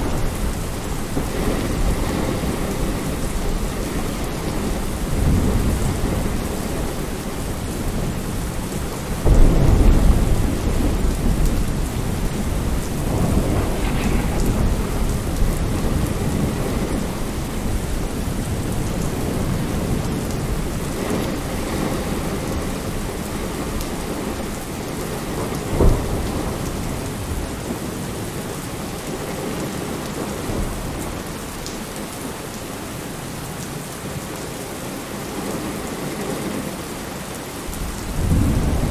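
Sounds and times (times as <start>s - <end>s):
sharp thunderclap: 0.0s - 24.4s, 25.3s - 27.8s, 37.8s - 38.9s
thunder rumbling: 0.0s - 32.2s, 37.6s - 38.9s
steady rain falling: 0.0s - 38.9s.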